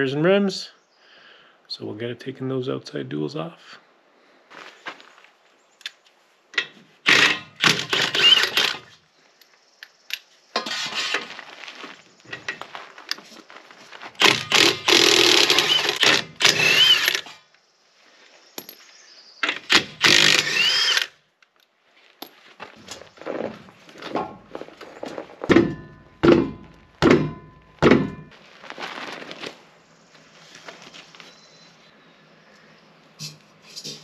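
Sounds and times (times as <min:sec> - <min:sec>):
impact wrench loosening lug nuts: 0:07.1 - 0:08.9, 0:14.2 - 0:17.4, 0:19.4 - 0:21.1.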